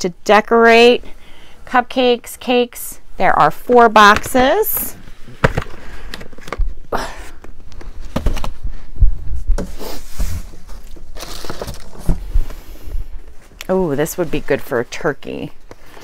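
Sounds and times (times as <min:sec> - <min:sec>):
cardboard boxes knocking and rustling: 0:05.2 - 0:06.7, 0:08.0 - 0:08.8, 0:09.5 - 0:12.4.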